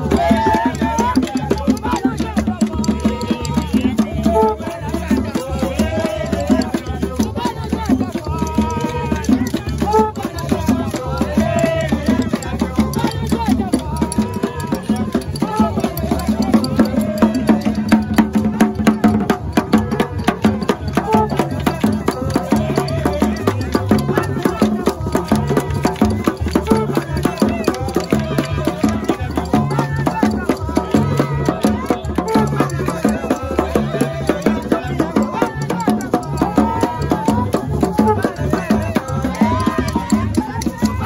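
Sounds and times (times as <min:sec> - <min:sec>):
crowd singing: 0:00.0 - 0:41.0
fast percussion knocks and rattles: 0:00.0 - 0:41.0.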